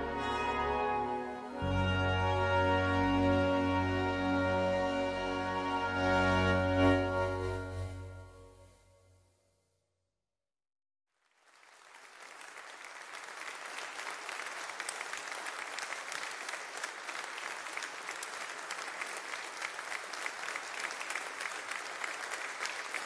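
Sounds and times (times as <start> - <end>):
large audience applauding: 11.2 - 23.0.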